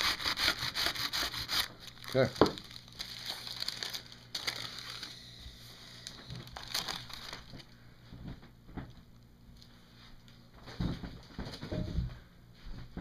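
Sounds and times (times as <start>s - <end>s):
paper crinkling: 1.5s - 5.2s, 6.0s - 7.8s.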